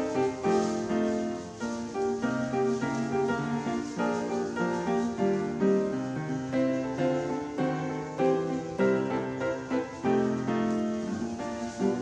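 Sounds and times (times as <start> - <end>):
instrumental piano music: 0.0 - 12.0.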